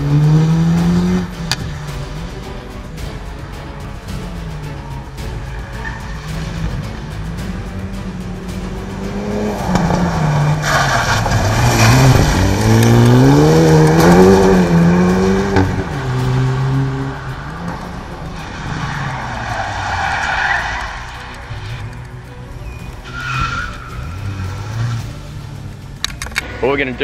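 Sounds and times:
car engine revving: 0.0s - 27.0s
tyres spraying gravel: 1.4s - 27.0s.

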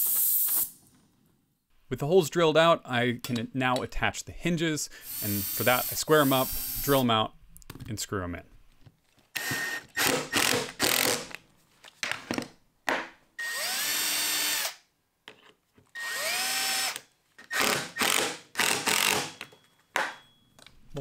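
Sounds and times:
cordless drill whining: 5.1s - 7.0s, 9.4s - 11.1s, 13.4s - 14.8s, 16.0s - 19.2s.

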